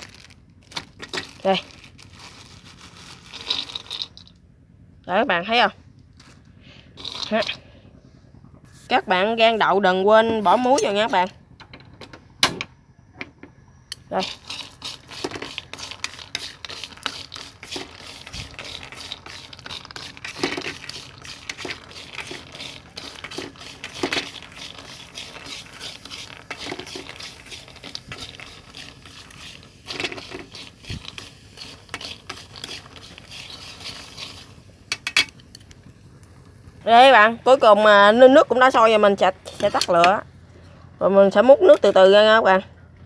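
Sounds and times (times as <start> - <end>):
peanuts stirred in a metal wok: 3.1 - 4.3, 7.0 - 7.6, 14.0 - 35.6, 38.6 - 40.2.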